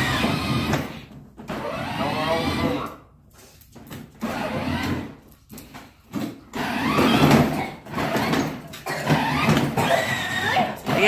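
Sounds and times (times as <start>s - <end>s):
toy car motor whirring: 0.0s - 0.8s, 1.5s - 3.0s, 4.2s - 5.2s, 6.5s - 11.0s.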